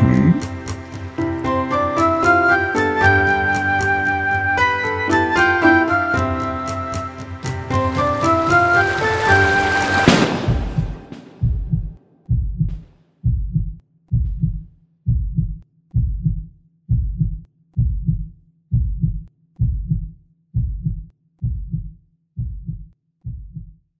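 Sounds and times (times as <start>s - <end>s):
heartbeat double thud: 10.1s - 23.7s.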